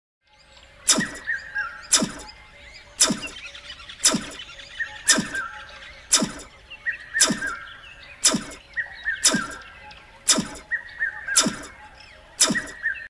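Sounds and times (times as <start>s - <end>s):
bird-like chirps: 0.5s - 13.0s
falling swoop effect: 1.9s - 2.3s, 4.0s - 4.4s, 6.1s - 6.5s, 7.2s - 7.6s, 11.4s - 11.7s.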